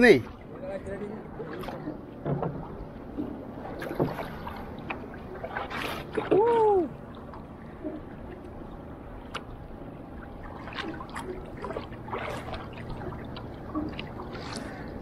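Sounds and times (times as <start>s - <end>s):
paddle splashes: 0.0s - 15.0s
water sloshing against canoe: 0.0s - 15.0s
light knocks on canoe: 2.2s - 4.3s.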